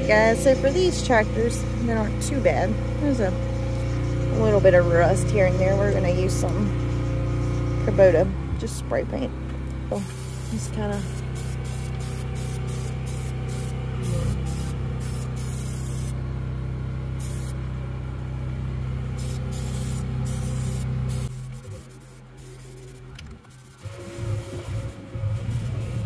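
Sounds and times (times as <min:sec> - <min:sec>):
low machine hum: 0:00.0 - 0:26.0
spray paint can hissing: 0:10.0 - 0:16.2, 0:17.2 - 0:17.6, 0:19.2 - 0:26.0.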